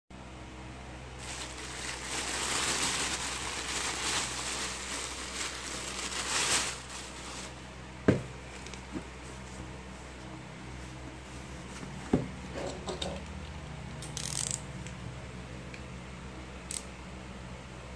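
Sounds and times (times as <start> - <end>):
plastic bag rustling: 1.1 - 12.2.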